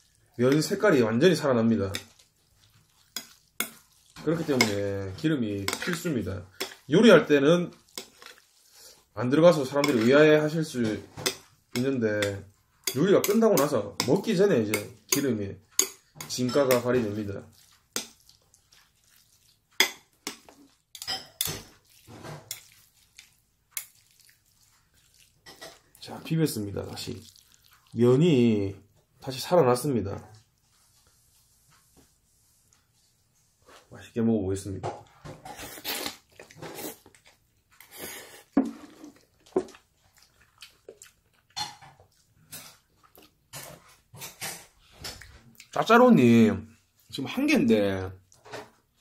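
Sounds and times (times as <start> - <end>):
slurping and chewing noodles: 2.0 - 4.5, 7.8 - 9.1, 17.4 - 20.9, 21.8 - 26.1, 26.8 - 28.1, 35.5 - 43.5.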